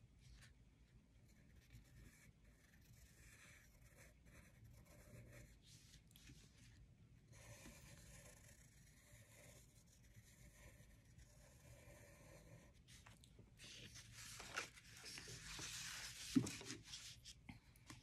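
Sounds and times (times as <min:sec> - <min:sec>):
pencil scratching on paper: 0:01.2 - 0:13.2.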